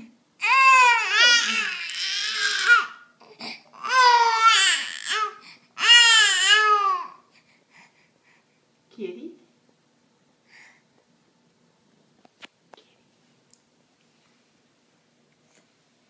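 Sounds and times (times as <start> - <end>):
baby crying: 0.4 - 7.2.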